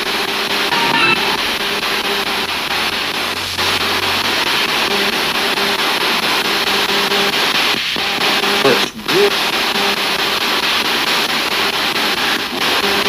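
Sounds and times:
radio static hiss: 6.8s - 10.5s.

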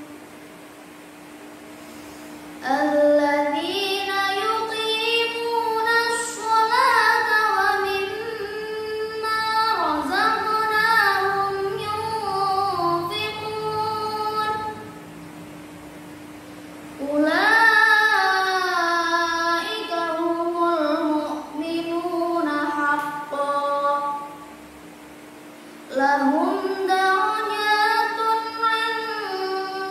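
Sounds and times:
girl reciting melodically: 2.6s - 15.0s, 17.0s - 24.4s, 25.9s - 29.9s.

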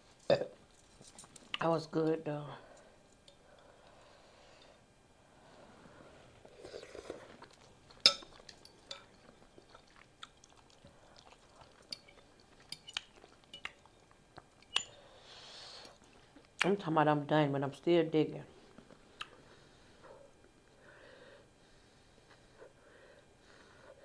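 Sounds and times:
chewing noodles: 6.4s - 14.8s.

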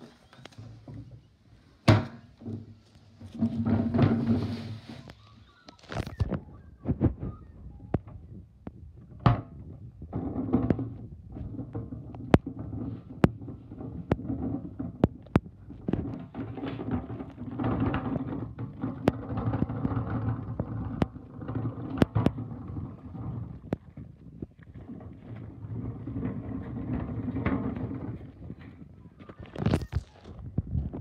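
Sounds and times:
bin wheels rumbling over ground: 2.2s - 5.3s, 10.0s - 29.1s.

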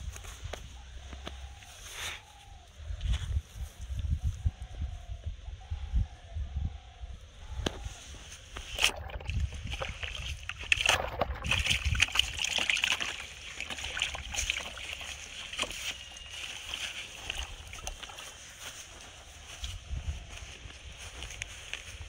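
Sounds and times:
fish splashing in water: 8.6s - 18.5s.

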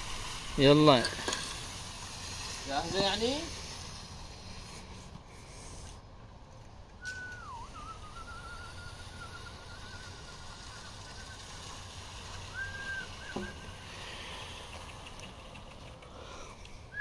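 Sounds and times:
brooms scraping concrete: 0.0s - 6.0s, 7.1s - 16.8s
high whistled tone: 7.0s - 11.8s, 12.4s - 13.6s.

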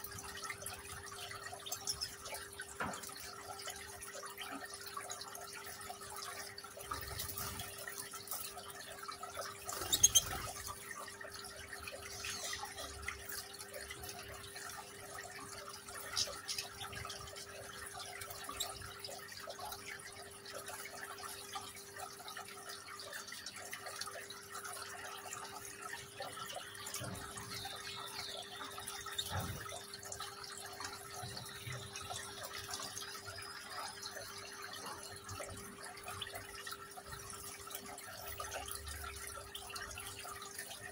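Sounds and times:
water trickling in fountain: 0.0s - 40.9s
faint high bird chirps: 9.7s - 10.6s.

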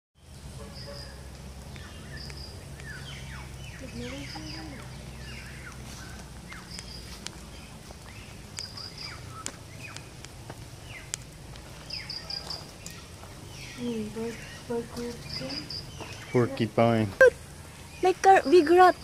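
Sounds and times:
birds chirping: 0.2s - 19.0s
sharp ticks: 1.3s - 5.0s, 6.5s - 13.0s
footsteps on concrete steps: 4.1s - 16.4s.

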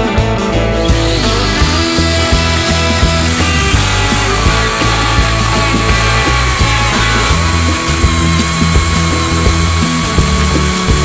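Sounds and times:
rock music with drums and bass: 0.0s - 11.0s.

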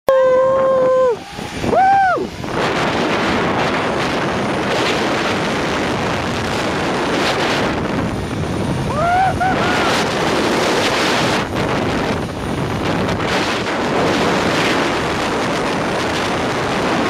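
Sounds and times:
person whooping: 0.1s - 2.3s, 8.9s - 10.0s
wind buffeting microphone: 0.1s - 17.0s.

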